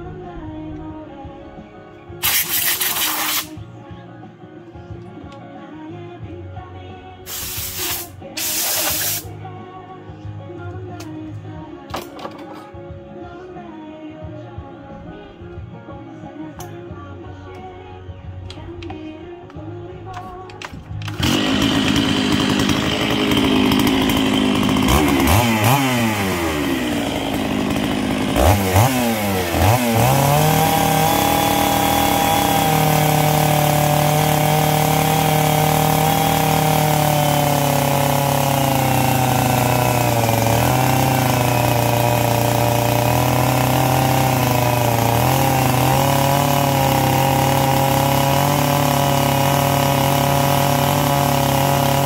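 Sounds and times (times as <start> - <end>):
chainsaw cutting log: 2.2 - 3.6, 7.2 - 9.3, 20.3 - 52.0.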